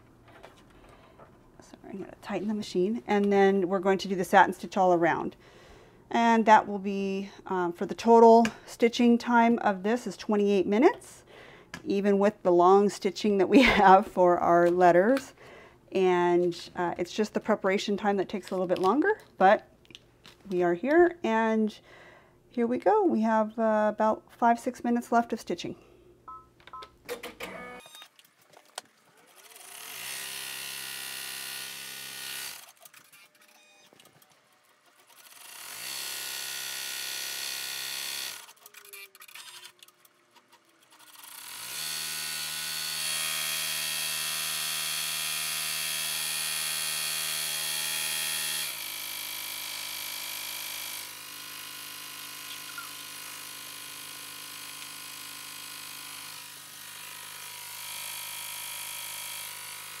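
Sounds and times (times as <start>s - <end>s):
embroidery machine motor running: 41.1s - 60.0s.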